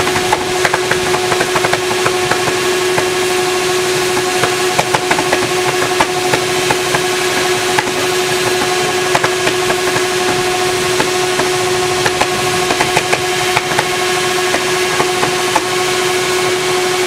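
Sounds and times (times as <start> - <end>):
motorcycle engine running hard: 0.0 - 17.0
sharp clicks and knocks: 4.2 - 15.7.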